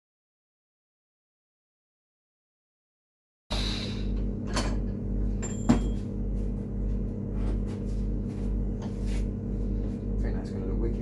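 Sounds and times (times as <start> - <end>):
steady low hum: 3.5 - 11.0.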